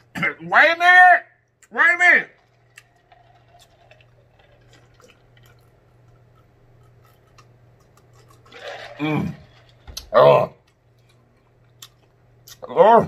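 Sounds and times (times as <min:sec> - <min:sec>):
man gulping: 0:02.4 - 0:11.1.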